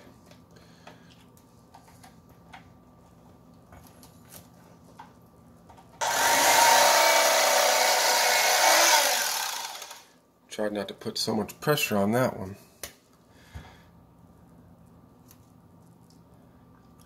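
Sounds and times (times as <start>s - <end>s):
electric fillet knife buzzing: 6.0s - 10.1s.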